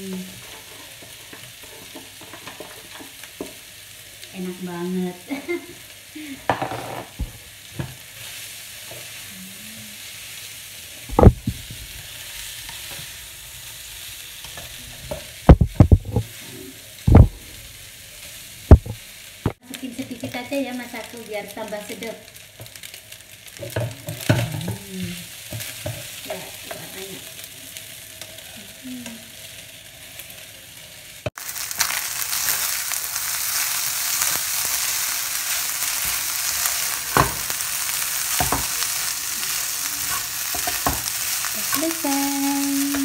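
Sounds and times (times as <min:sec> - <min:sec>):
rice sizzling in a frying pan: 0:00.0 - 0:43.0
spatula stirring and scraping: 0:00.2 - 0:03.6, 0:32.3 - 0:43.0.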